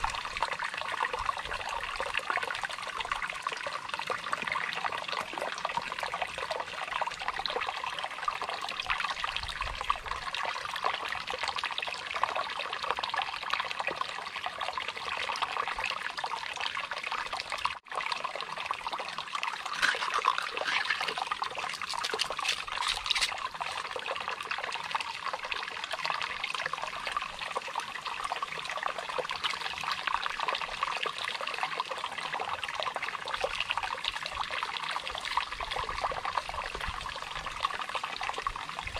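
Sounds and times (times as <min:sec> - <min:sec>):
stream trickling over rocks: 0:00.0 - 0:38.9
hands splashing in water: 0:19.6 - 0:23.8.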